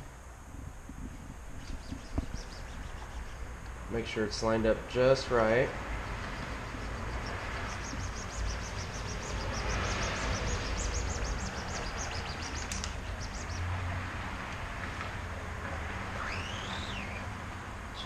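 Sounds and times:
low background rumble: 0.0 - 18.0
bird chirping rapidly: 1.6 - 3.5, 6.0 - 13.7, 16.2 - 17.3.

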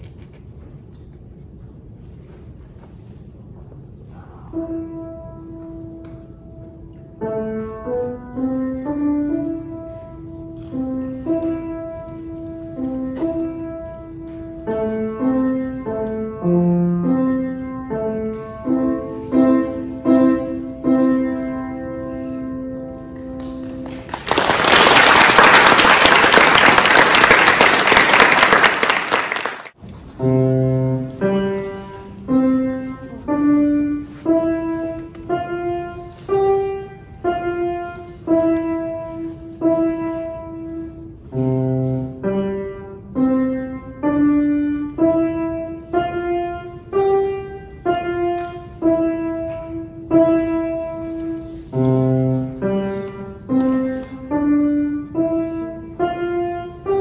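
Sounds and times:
slow piano melody: 3.8 - 57.0
audience applauding: 23.4 - 29.8.

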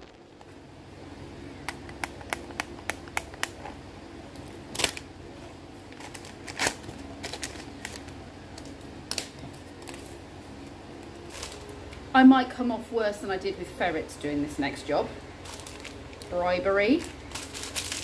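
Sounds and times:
steady low hum: 0.0 - 18.0
packaging rustling: 5.8 - 10.2, 11.0 - 11.8, 15.4 - 16.4, 17.0 - 18.0.

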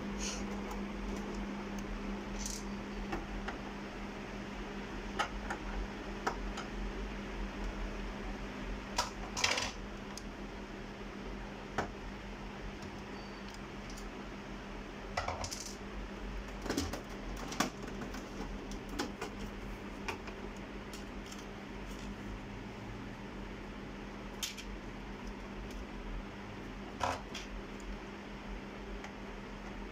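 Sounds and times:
steady low hum: 0.0 - 29.9
small parts clicking and clattering: 2.4 - 2.7, 9.0 - 10.3, 13.5 - 14.1, 15.2 - 15.8, 20.9 - 22.1, 24.4 - 25.8.

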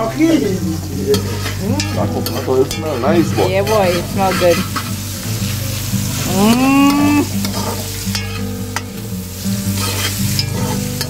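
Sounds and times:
food sizzling in oil: 0.0 - 11.0
metal spoon stirring: 0.0 - 11.0
person singing a held note: 6.2 - 7.4.

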